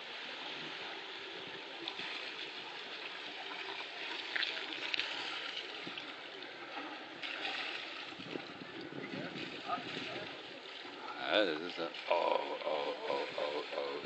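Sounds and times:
water rushing beside a boat: 0.0s - 14.0s
wind noise: 7.4s - 10.7s.

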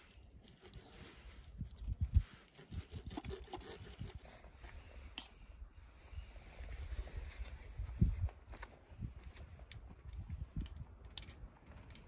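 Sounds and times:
plastic cutlery sawing through steak: 2.6s - 4.3s.

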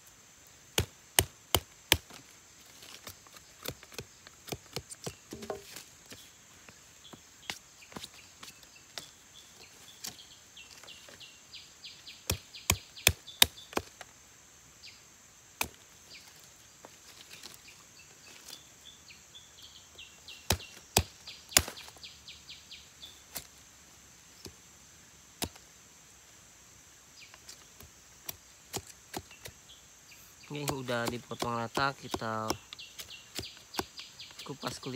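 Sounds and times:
machete chopping plant stems: 0.7s - 5.8s, 15.6s - 15.8s, 20.4s - 21.9s, 30.5s - 34.9s.

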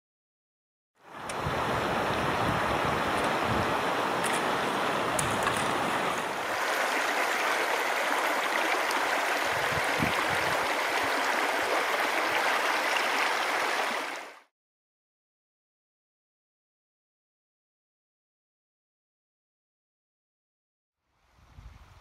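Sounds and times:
river water rushing over rocks: 1.1s - 14.4s.

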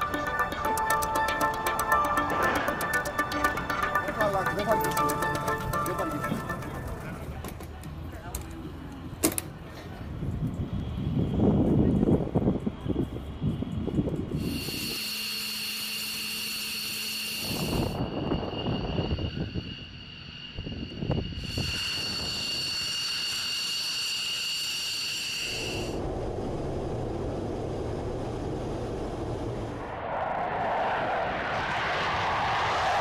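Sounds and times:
rushing noise: 0.0s - 7.4s, 16.7s - 33.0s
jet engines whining: 0.0s - 9.1s, 14.3s - 33.0s.

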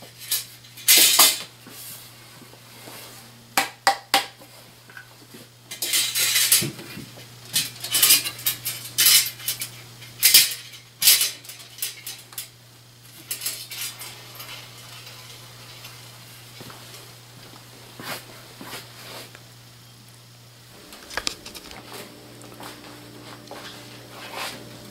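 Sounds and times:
metal pinwheel blades clinking: 7.6s - 12.5s, 13.1s - 16.0s.

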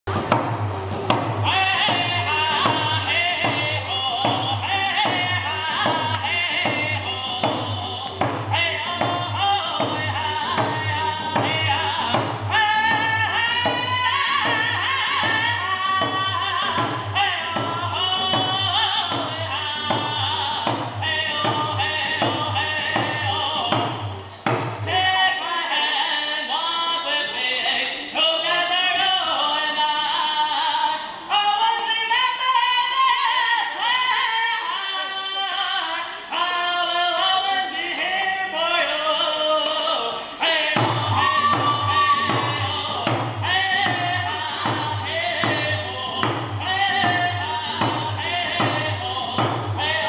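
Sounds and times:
person singing: 0.1s - 50.0s
hand drum beat: 40.8s - 50.0s.

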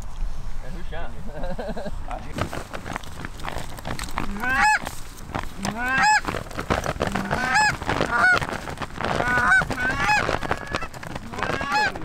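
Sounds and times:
goose calls honking and clucking: 4.2s - 4.9s, 5.6s - 12.0s.

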